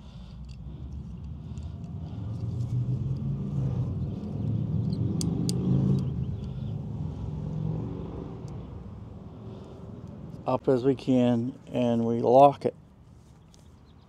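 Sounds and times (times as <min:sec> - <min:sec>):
vehicle engine driving past: 0:00.6 - 0:10.7
sharp clicks: 0:04.2 - 0:06.6.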